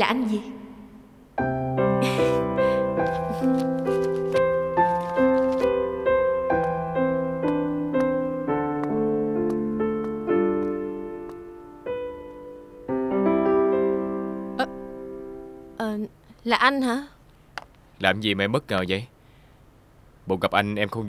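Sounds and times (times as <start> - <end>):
slow solo piano music: 1.4 - 15.7.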